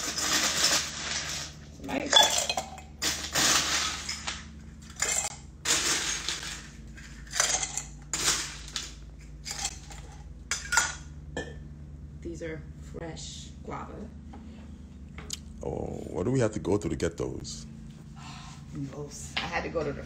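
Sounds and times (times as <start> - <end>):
ice cubes scooped and clattering: 0.0 - 10.1.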